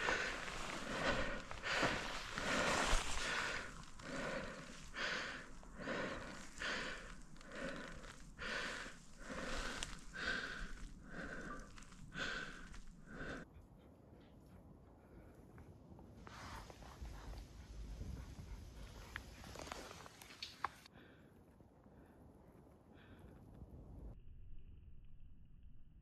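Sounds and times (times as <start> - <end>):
person breathing hard: 0.0 - 13.5.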